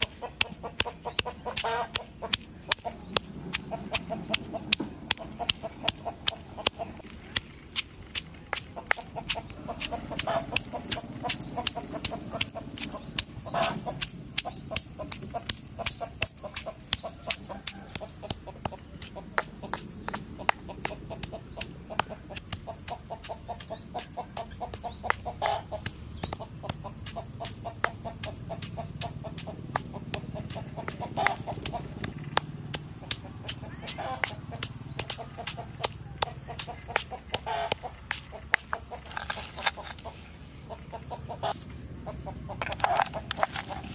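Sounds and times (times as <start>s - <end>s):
stone pestle pounding in mortar: 0.0s - 39.4s.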